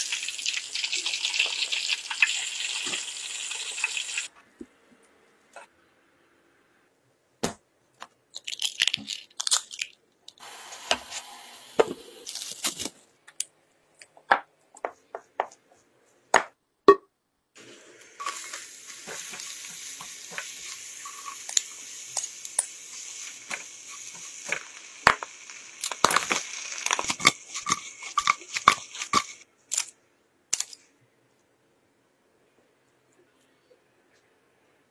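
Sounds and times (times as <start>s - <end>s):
garlic sizzling in butter: 0.0s - 4.3s, 10.4s - 12.8s, 17.6s - 29.4s.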